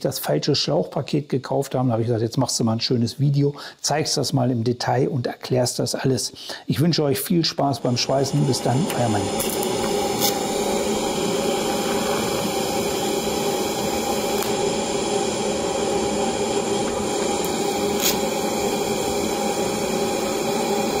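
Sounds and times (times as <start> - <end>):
welding arc hissing: 6.9 - 21.0.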